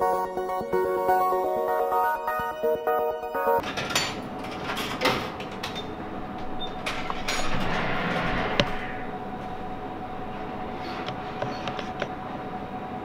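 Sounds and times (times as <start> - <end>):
steady hum: 0.0 - 3.6, 5.4 - 13.0
vending machine whirring: 0.0 - 13.0
vending machine clicks and knocks: 3.6 - 6.0.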